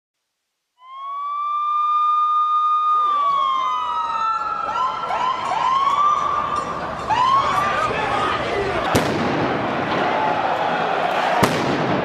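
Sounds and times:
siren wail: 0.8s - 8.4s.

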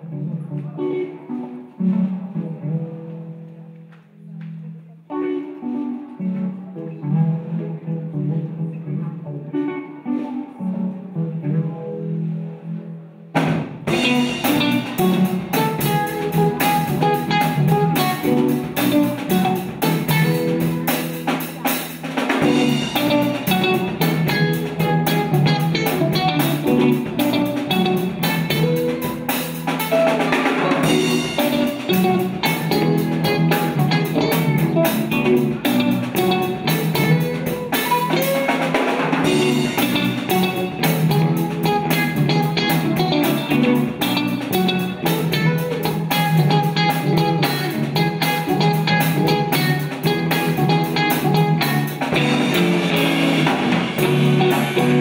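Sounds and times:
electric bass: 0.0s - 55.0s
electric guitars: 0.0s - 55.0s
drum kit: 13.2s - 55.0s.

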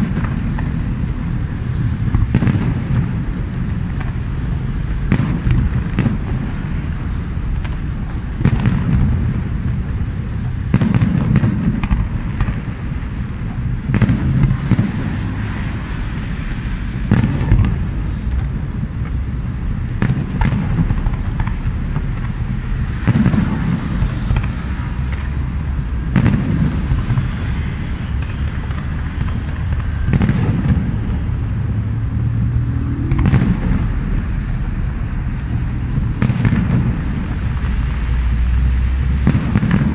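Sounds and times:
fireworks bangs: 0.0s - 39.9s
low rumble: 11.6s - 39.8s.

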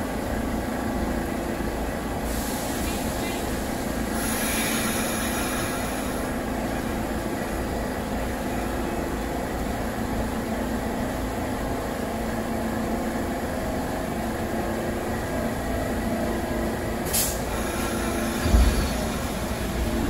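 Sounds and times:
subway train humming: 0.0s - 20.0s
air hiss: 4.1s - 6.3s.

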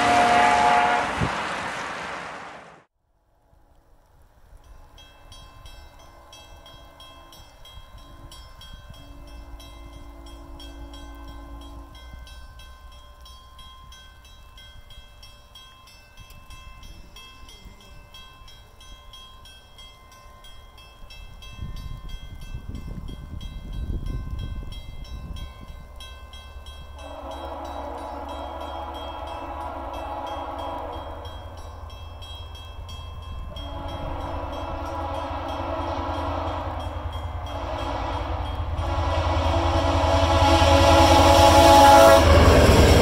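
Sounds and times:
train horn blast: 0.0s - 2.1s, 9.0s - 12.2s, 27.0s - 31.6s, 33.4s - 43.0s
train rumble: 0.0s - 2.9s, 3.5s - 43.0s.

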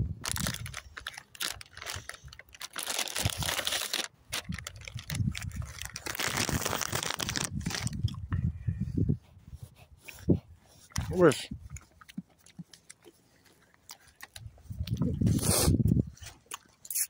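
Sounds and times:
plastic packet crinkling: 0.2s - 8.2s.

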